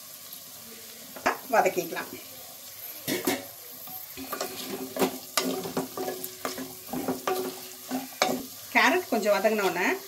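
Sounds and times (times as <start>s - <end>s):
vegetables sizzling in butter: 0.0s - 10.0s
wooden spatula scraping metal pot: 4.2s - 8.6s.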